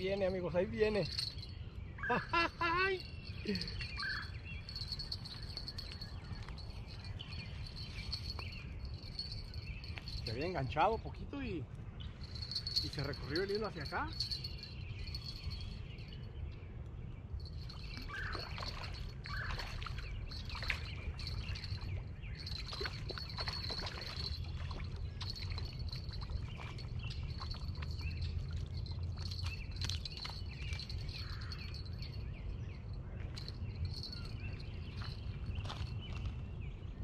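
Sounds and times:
insect trill: 0.0s - 10.7s, 12.2s - 16.2s, 20.2s - 32.2s, 33.4s - 35.8s.

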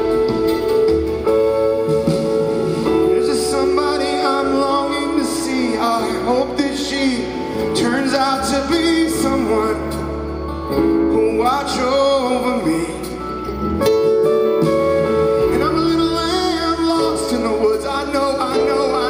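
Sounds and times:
electric guitar: 0.0s - 19.0s
rock band playing live: 0.0s - 19.0s
man singing: 2.9s - 13.7s, 15.3s - 19.0s.

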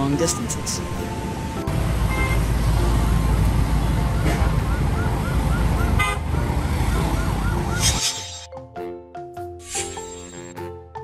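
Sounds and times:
road traffic: 0.0s - 8.5s
truck diesel engine rumbling: 1.0s - 8.0s.

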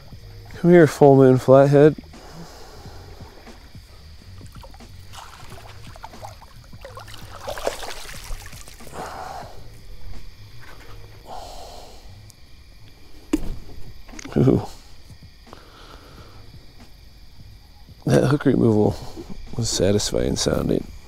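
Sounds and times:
water splashing: 4.3s - 9.0s
sharp thump: 13.3s - 13.8s.

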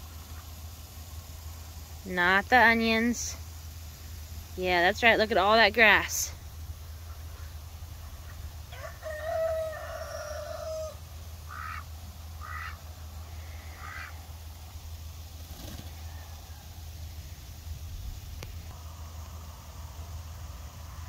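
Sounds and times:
steady low rumble: 0.0s - 8.8s
rooster crowing: 8.7s - 11.8s, 15.9s - 16.9s.

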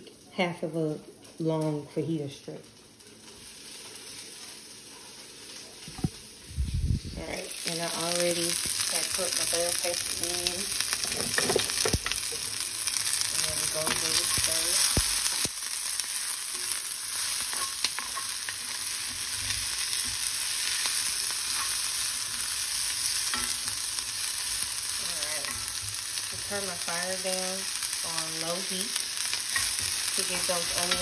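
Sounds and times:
vegetables sizzling in oil: 1.0s - 31.0s.

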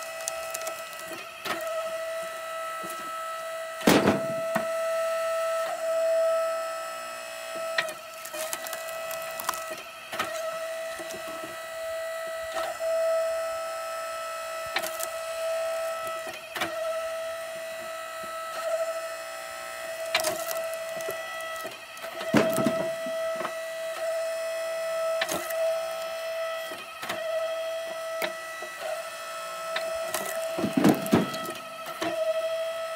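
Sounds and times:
wood splitting crack: 0.0s - 1.8s, 3.8s - 4.8s, 7.6s - 11.3s, 14.7s - 17.0s, 19.8s - 26.1s, 29.7s - 32.2s
log splitter motor whining: 0.0s - 32.9s.

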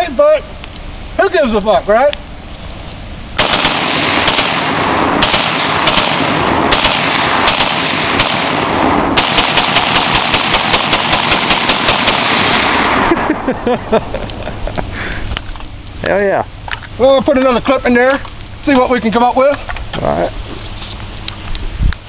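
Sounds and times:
rapid rifle shots: 3.4s - 13.1s.

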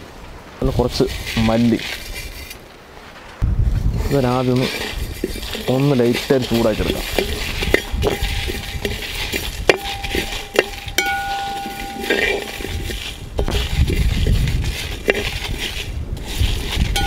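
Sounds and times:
metal ladle scraping metal pan: 1.1s - 2.6s, 3.9s - 17.0s
seeds rattling on metal: 4.2s - 17.0s.

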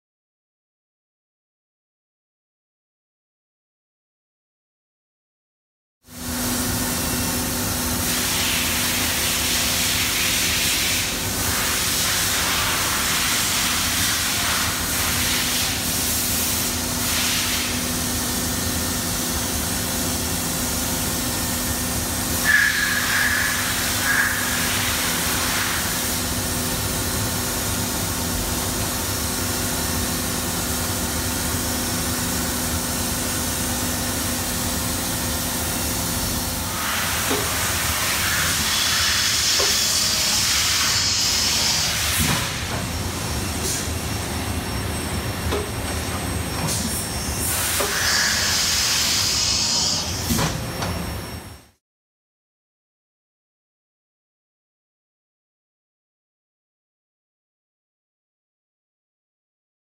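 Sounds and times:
machine hiss and hum: 6.1s - 51.8s.

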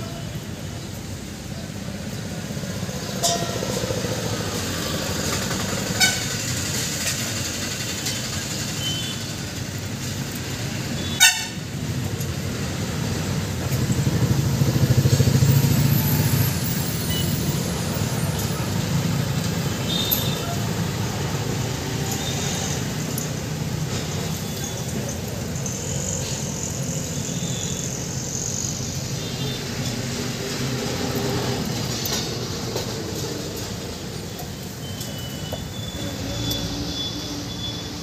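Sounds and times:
road traffic rumble: 0.0s - 38.0s
heavy vehicle passing: 12.0s - 34.6s.

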